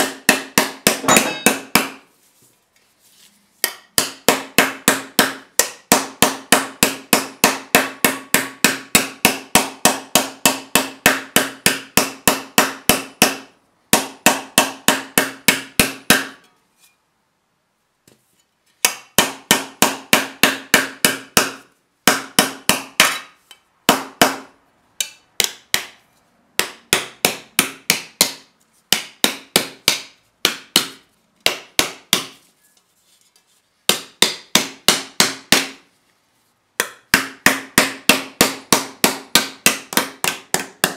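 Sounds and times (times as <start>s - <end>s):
hammer tapping copper sheet: 0.0s - 2.1s, 18.8s - 26.0s, 36.8s - 40.9s.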